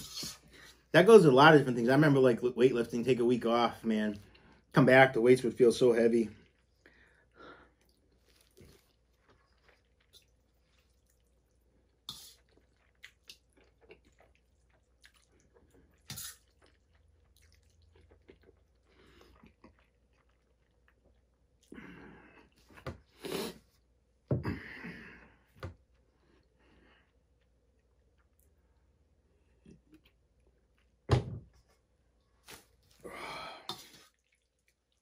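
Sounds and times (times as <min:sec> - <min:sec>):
chewing: 0:07.7 - 0:21.8, 0:33.7 - 0:35.0.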